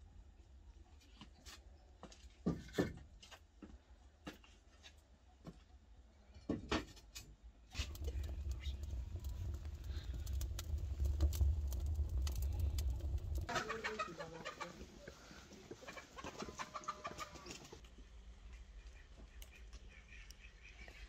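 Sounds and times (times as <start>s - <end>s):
fire crackling: 7.6s - 17.9s
fire rumbling: 7.6s - 17.9s
chickens clucking: 13.4s - 17.8s.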